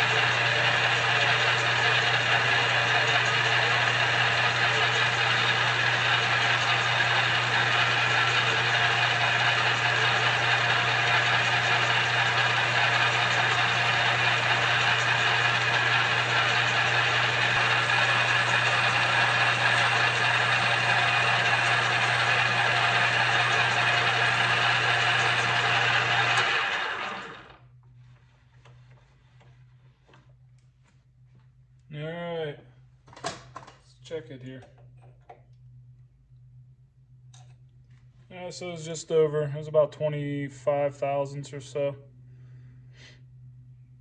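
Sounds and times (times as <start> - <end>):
benchtop lathe cutting metal: 0.0 - 27.6.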